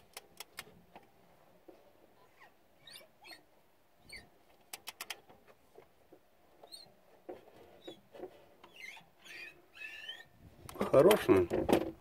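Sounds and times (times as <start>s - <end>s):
sharp clicks: 0.0s - 1.1s, 4.7s - 5.2s
faint squeaks: 2.0s - 4.4s, 6.5s - 11.1s.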